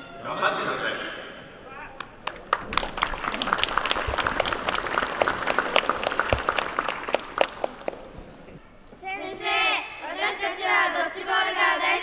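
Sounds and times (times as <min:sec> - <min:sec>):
children applauding: 0:01.9 - 0:08.1.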